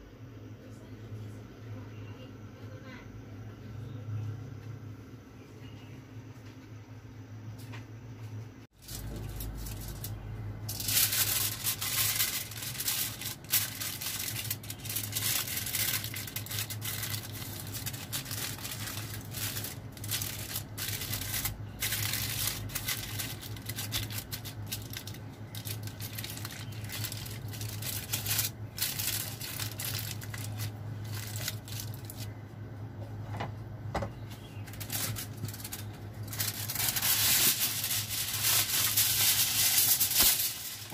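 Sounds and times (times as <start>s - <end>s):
steady low hum: 0.0s - 40.9s
aluminium foil crinkling: 8.8s - 32.4s, 34.3s - 40.9s.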